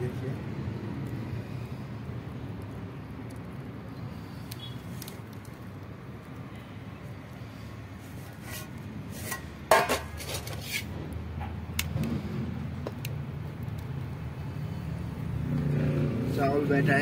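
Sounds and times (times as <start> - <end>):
metal lid and ladle clanking on pot: 9.2 - 10.9.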